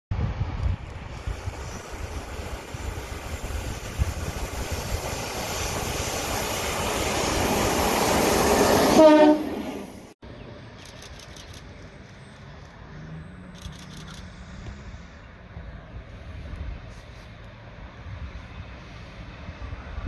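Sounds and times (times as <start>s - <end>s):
locomotive engine rumble: 0.2s - 20.0s
locomotive horn toot: 8.9s - 9.6s.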